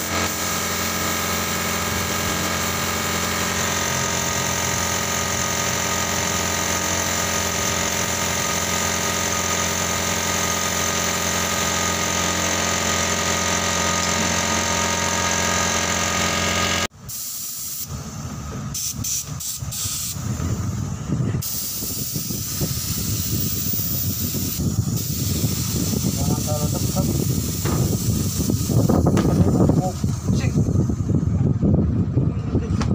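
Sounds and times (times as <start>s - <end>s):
spray gun hissing: 0.0s - 8.7s, 17.1s - 18.0s, 18.7s - 20.2s, 21.4s - 30.1s
air compressor motor running: 0.0s - 32.9s.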